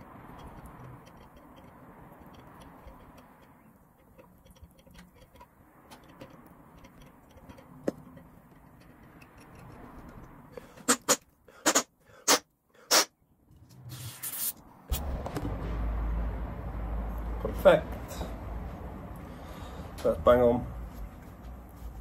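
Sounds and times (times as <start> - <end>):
tap ticking and creaking: 0.0 - 11.4
short loud hisses: 10.8 - 13.1.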